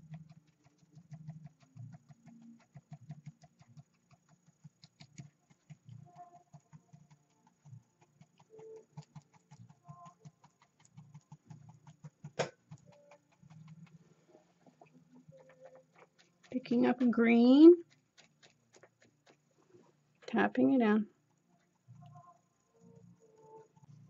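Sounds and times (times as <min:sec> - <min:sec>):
paint brush tapping canvas: 0:00.0 - 0:19.6.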